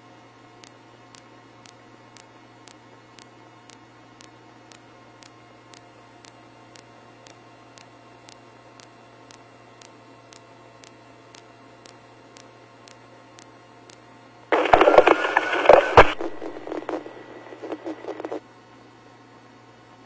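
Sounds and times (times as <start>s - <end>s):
faint ticks: 0.6s - 14.1s
garbled radio burst: 14.5s - 18.4s
low hum: 14.5s - 18.4s.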